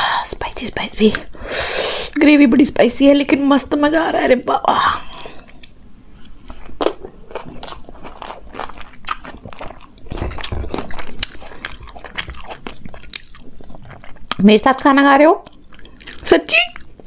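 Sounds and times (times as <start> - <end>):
close chewing and biting: 5.2 - 17.0.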